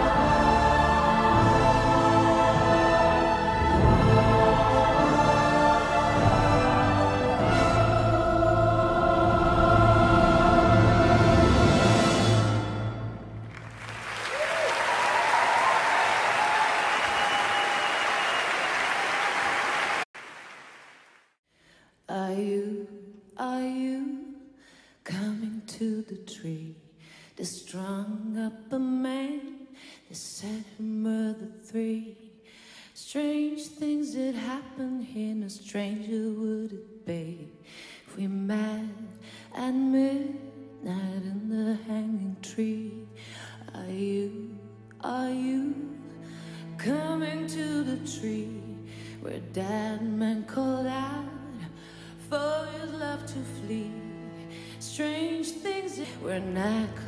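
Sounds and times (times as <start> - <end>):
audience applauding: 13.4 - 21.3
woman singing slow melody: 22.1 - 24.4, 33.0 - 54.2, 54.8 - 57.0.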